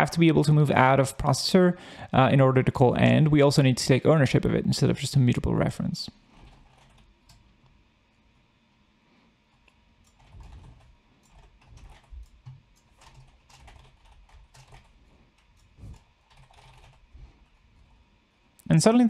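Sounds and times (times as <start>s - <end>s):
faint keyboard typing: 6.3s - 7.8s, 9.5s - 18.7s.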